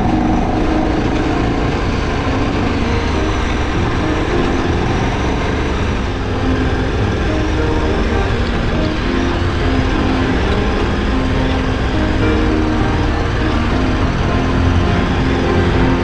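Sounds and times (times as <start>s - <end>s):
wind and road noise: 0.0s - 16.0s.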